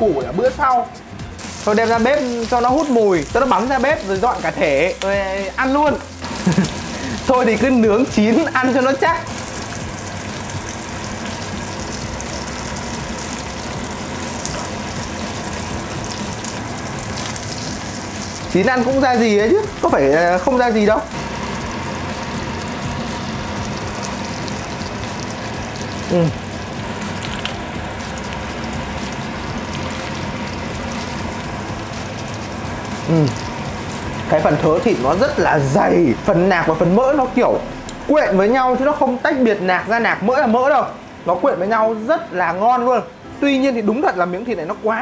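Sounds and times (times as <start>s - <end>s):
low mechanical hum: 1.0s - 43.9s
meat sizzling on a grill: 1.2s - 45.0s.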